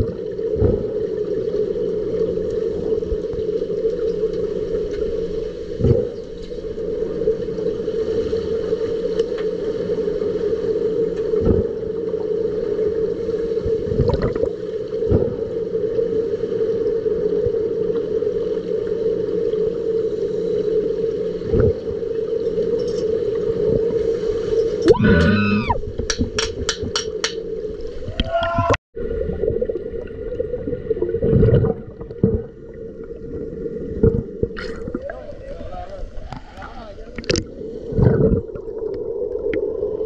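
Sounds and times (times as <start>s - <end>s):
underwater hum: 0.0s - 40.0s
dull underwater knocks: 26.0s - 27.4s.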